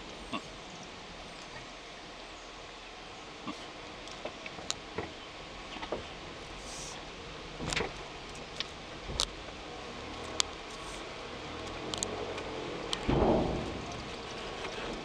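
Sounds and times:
van engine low rumble: 0:00.0 - 0:15.0
sharp knocks and rattles: 0:12.8 - 0:15.0.

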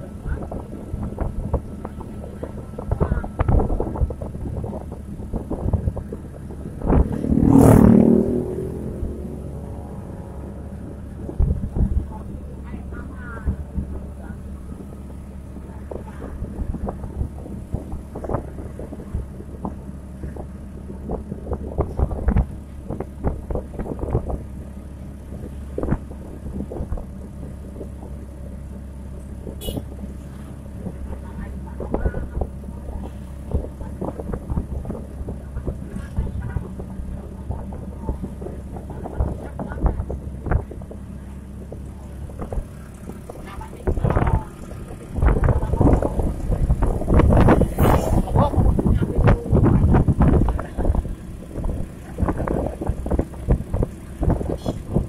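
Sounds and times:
motorcycle engine running: 0:00.0 - 0:55.0
rushing noise: 0:42.5 - 0:52.6.

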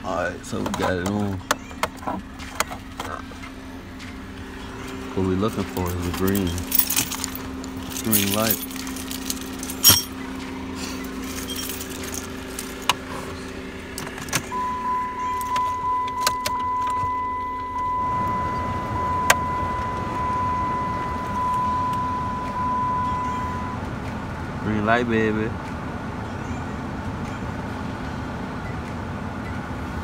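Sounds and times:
low hum: 0:01.9 - 0:24.6
electronic warning tone: 0:14.5 - 0:23.8.

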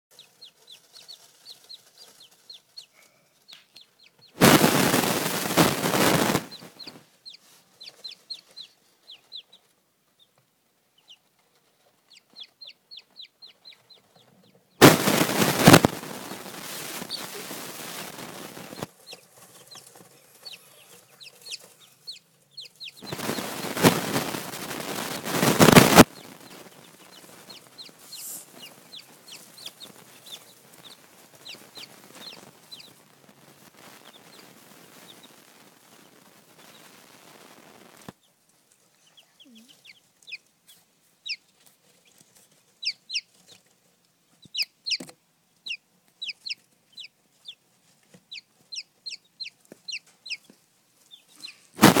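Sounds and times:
baby chicks peeping: 0:00.1 - 0:52.0
loud burst of noise: 0:04.4 - 0:06.8, 0:14.8 - 0:18.9, 0:23.0 - 0:26.8, 0:51.8 - 0:52.0.

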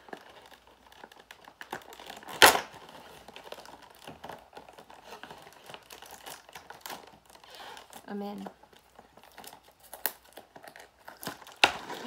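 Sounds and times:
tape peeling off a box: 0:00.0 - 0:08.0
packaging crinkling: 0:00.0 - 0:12.0
tape ripping: 0:00.0 - 0:12.0.

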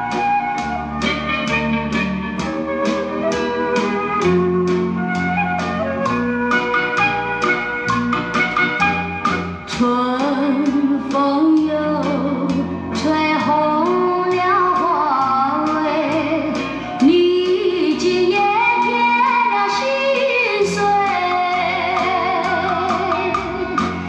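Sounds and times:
bass notes: 0:00.0 - 0:19.7, 0:20.6 - 0:24.0
light percussion: 0:00.0 - 0:24.0
woman singing with vibrato: 0:09.7 - 0:24.0.

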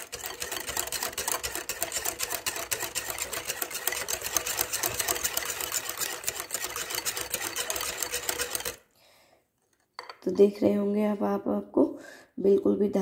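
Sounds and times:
wire whisk ticking against steel bowl: 0:00.0 - 0:08.8.

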